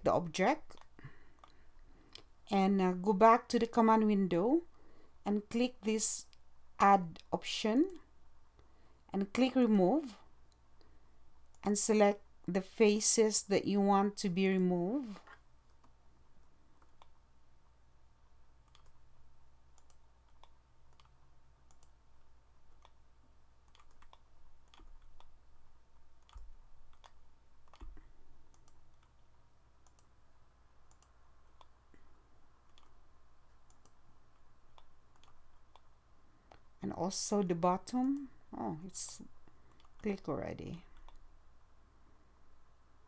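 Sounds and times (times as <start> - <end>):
low steady hum: 0.0 - 43.0
computer mouse clicking: 0.6 - 2.3, 14.6 - 17.2, 18.6 - 19.1, 19.7 - 22.0, 22.7 - 23.0, 23.6 - 25.4, 26.0 - 30.2, 30.8 - 35.9, 39.7 - 40.1, 40.9 - 41.2.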